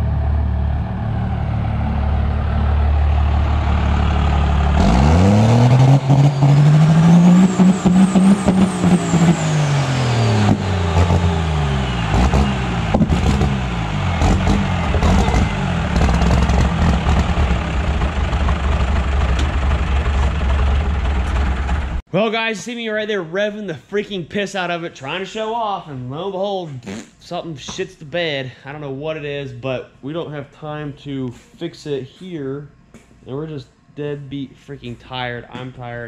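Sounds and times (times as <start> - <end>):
diesel engine idling and revving: 0.0 - 22.0
turbo whistle: 5.2 - 16.6.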